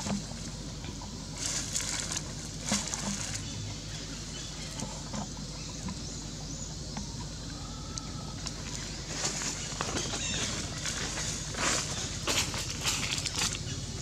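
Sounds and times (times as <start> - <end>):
low outdoor hum: 0.0 - 14.0
dry leaves rustling: 1.2 - 5.1, 8.3 - 14.0.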